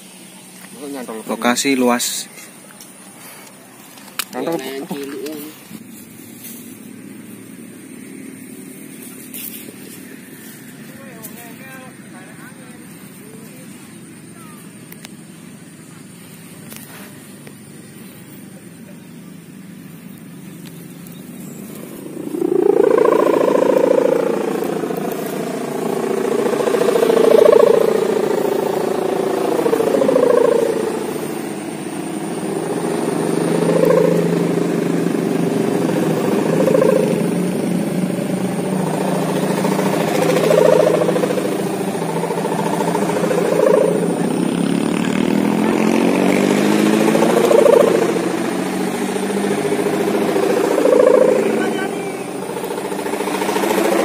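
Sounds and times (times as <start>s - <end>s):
kite hummer bow droning: 19.3s - 54.0s.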